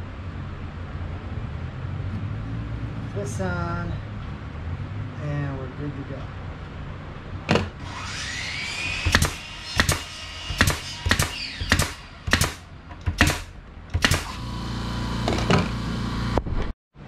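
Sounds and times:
nail gun firing: 0:07.5 - 0:15.8
air compressor motor humming: 0:08.7 - 0:16.6.

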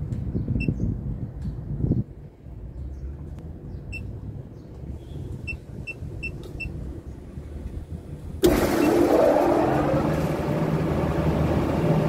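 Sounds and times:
low machinery rumble: 0:00.0 - 0:12.0.

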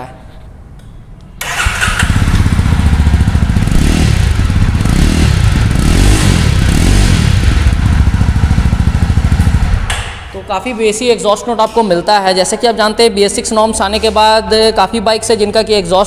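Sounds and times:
motorcycle engine revving: 0:01.4 - 0:09.9.

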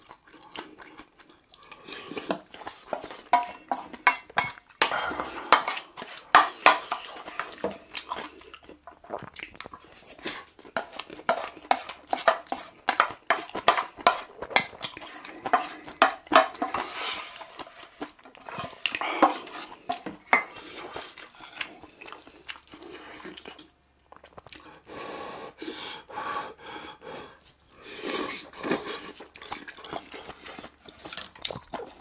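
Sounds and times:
chewing: 0:00.0 - 0:24.8, 0:27.4 - 0:32.0
metal spoon scraping metal bowl: 0:02.9 - 0:07.5.

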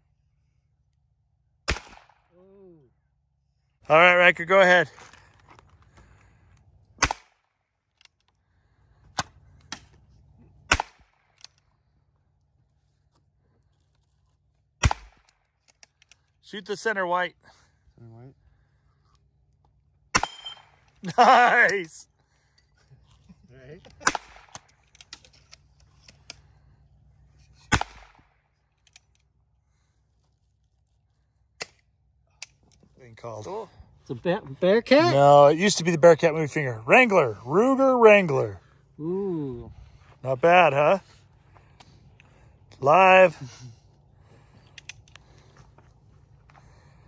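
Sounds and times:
gunshot with echo: 0:01.7 - 0:02.2
revolver gunshot cracks: 0:01.7 - 0:02.3, 0:07.0 - 0:07.3, 0:14.8 - 0:15.2, 0:24.0 - 0:24.6, 0:27.7 - 0:28.2.

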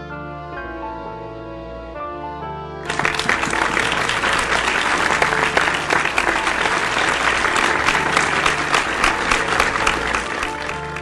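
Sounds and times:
soft music: 0:00.0 - 0:11.0
audience applauding: 0:02.9 - 0:11.0.

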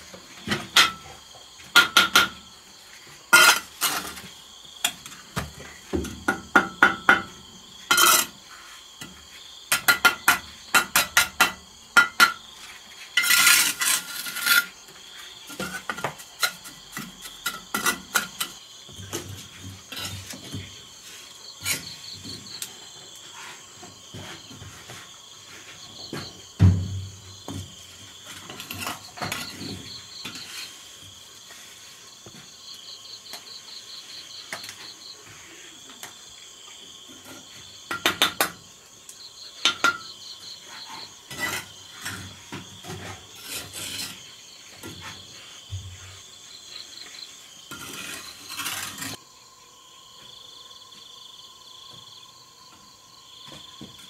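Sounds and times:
insects trilling and chirping: 0:00.0 - 0:54.0
trowel scraping mortar: 0:03.0 - 0:04.4, 0:07.8 - 0:08.8, 0:12.3 - 0:18.6, 0:19.3 - 0:22.2, 0:28.0 - 0:31.0, 0:40.7 - 0:45.6, 0:47.7 - 0:49.2
trowel tapping on bricks: 0:09.7 - 0:12.4.

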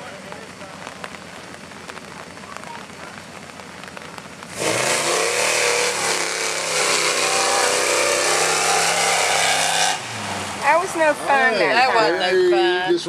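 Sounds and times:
truck engine revving hard: 0:04.5 - 0:11.8.

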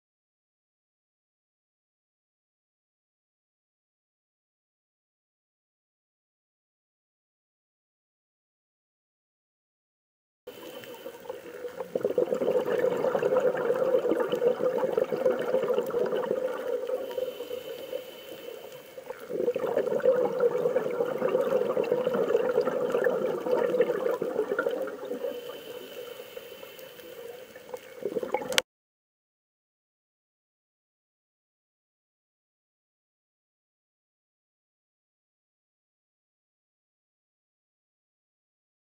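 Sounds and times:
underwater bubbling: 0:10.5 - 0:28.6.

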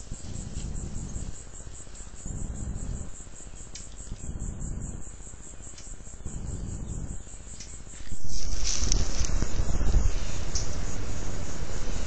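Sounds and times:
faint hiss: 0:00.0 - 0:12.0
insects chirping: 0:00.0 - 0:12.0
low rumble: 0:08.0 - 0:12.0.

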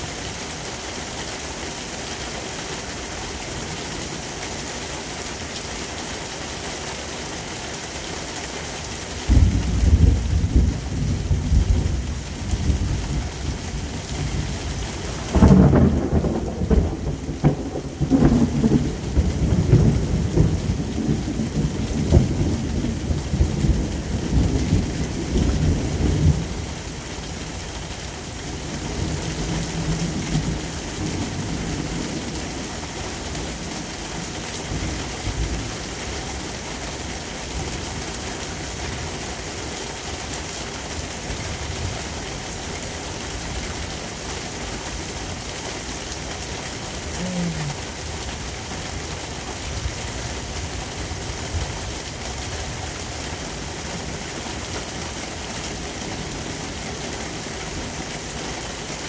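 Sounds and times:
heavy rain hissing: 0:00.0 - 0:59.0
thunder rumbling: 0:09.3 - 0:13.6, 0:14.2 - 0:26.6.

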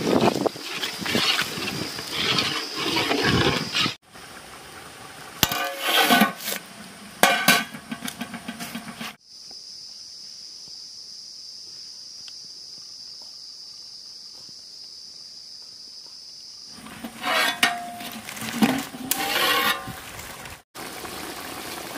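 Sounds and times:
metal lid clanking: 0:07.2 - 0:09.1, 0:16.8 - 0:20.0.

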